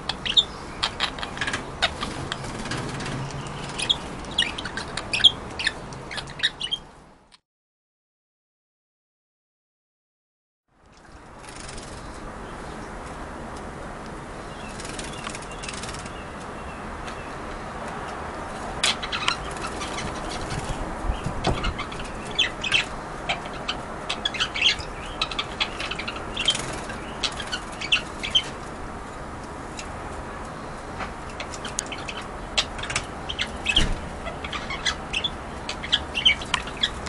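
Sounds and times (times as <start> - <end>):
bird wings fluttering: 11.4 - 12.1, 14.7 - 16.1.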